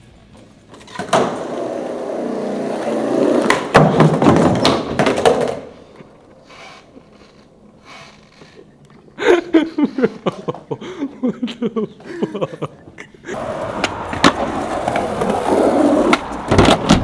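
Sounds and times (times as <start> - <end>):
skateboard wheels rolling on concrete: 0.0 - 10.8, 12.0 - 17.0
skateboard clacks: 0.8 - 7.0, 13.4 - 17.0
skateboard slam: 0.9 - 5.8, 13.4 - 17.0
young man laughing: 8.6 - 13.6.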